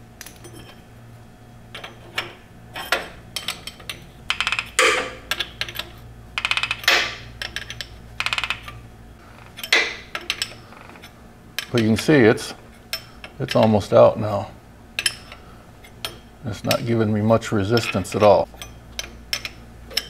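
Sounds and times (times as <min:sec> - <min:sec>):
rapid metal clicks of a wrench: 0:03.4 - 0:08.8.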